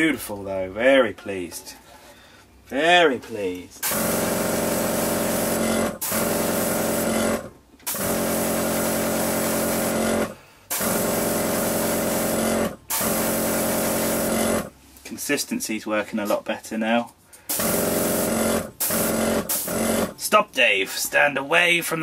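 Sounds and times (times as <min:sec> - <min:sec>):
compressor humming: 0:03.4 - 0:14.7, 0:17.4 - 0:20.4.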